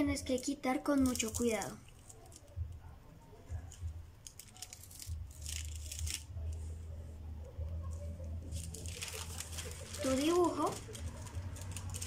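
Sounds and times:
adhesive tape peeling off paper: 3.7s - 6.6s
paper rustling: 3.7s - 6.8s, 7.8s - 12.0s.

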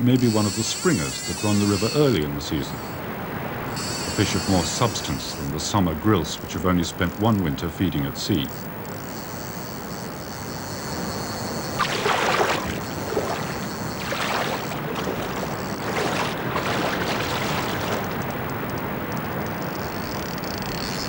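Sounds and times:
fish splashing at the surface: 11.8s - 18.9s
rushing river water: 11.8s - 19.7s.

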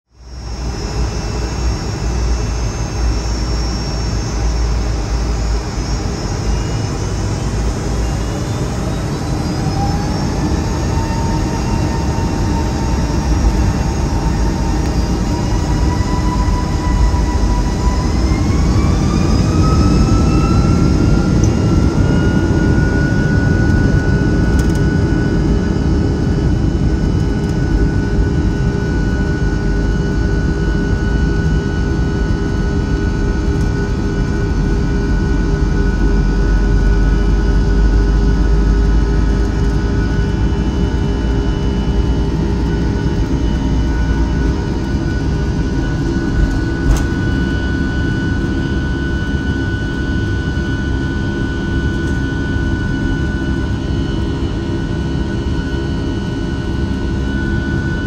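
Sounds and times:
jet engines spooling up: 0.2s - 58.0s.

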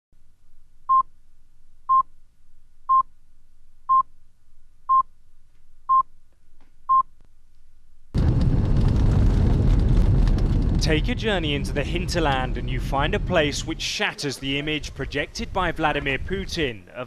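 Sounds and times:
faint hum: 0.2s - 17.0s.

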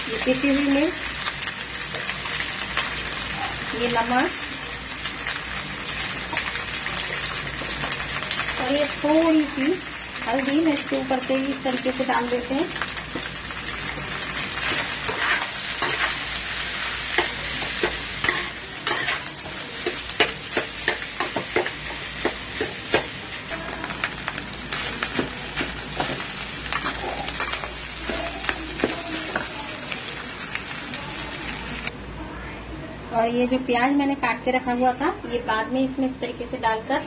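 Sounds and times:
potatoes sizzling in oil: 0.0s - 31.9s
metal spatula scraping pan: 14.6s - 16.3s.

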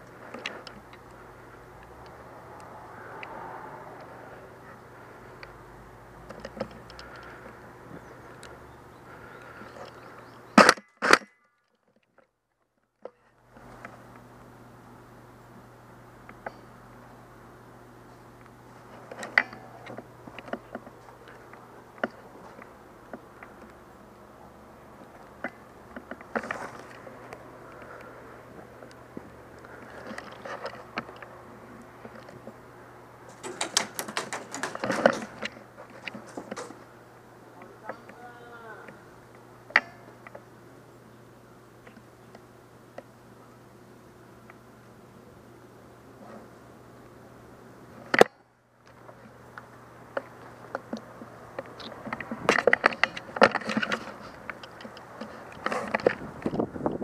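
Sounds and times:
airsoft gunfire clacks: 33.3s - 35.4s
scattered knocks: 33.3s - 35.5s.

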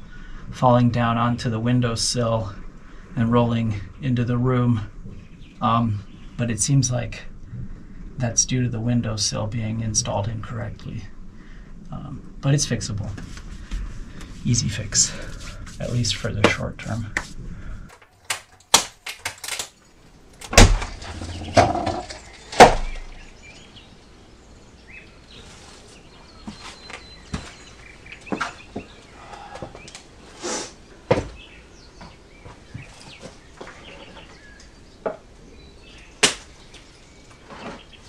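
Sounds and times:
hard objects knocking and clattering: 20.7s - 23.0s.

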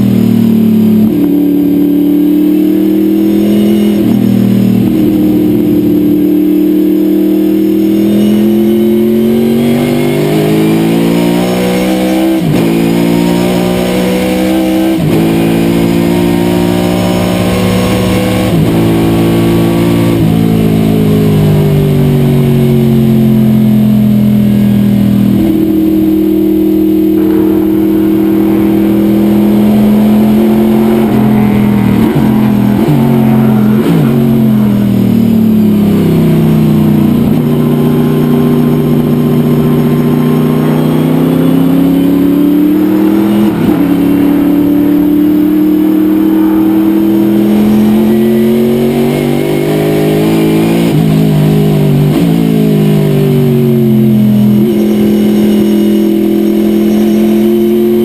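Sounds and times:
car engine revving hard: 0.0s - 58.0s.

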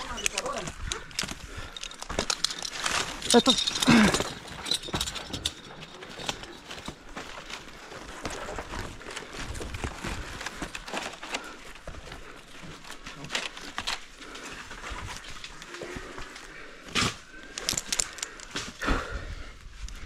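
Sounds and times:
rustling of rope and palm fronds: 0.0s - 20.0s.

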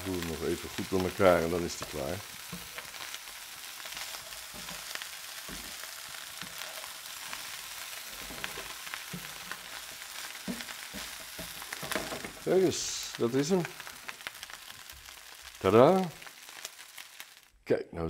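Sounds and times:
rice sizzling in a frying pan: 0.0s - 17.6s
metal spatula scraping a pan: 3.8s - 12.2s.

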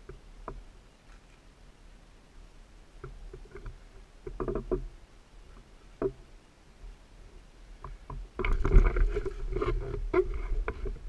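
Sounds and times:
faint clicks and knocks: 0.0s - 1.4s, 2.9s - 7.0s, 7.8s - 11.0s.

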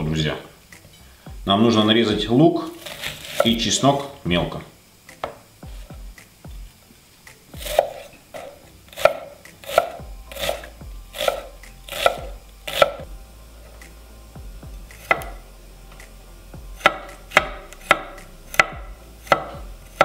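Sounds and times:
knife chopping on wooden board: 7.6s - 13.1s, 14.9s - 15.4s, 16.8s - 20.0s.

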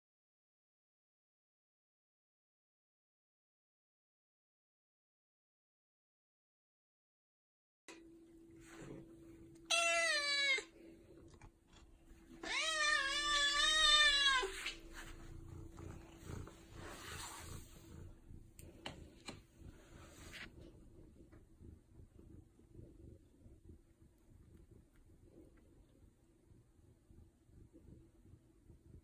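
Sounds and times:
cat meowing: 9.7s - 10.7s, 12.3s - 14.8s.

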